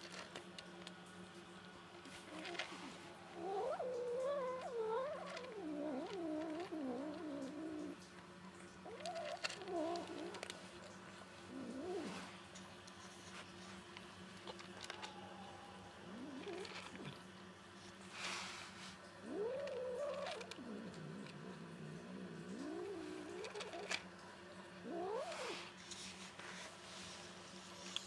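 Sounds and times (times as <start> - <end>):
cat growling: 2.2 - 8.0, 8.8 - 10.6, 11.4 - 12.3, 14.6 - 17.3, 19.2 - 24.0, 24.8 - 25.7.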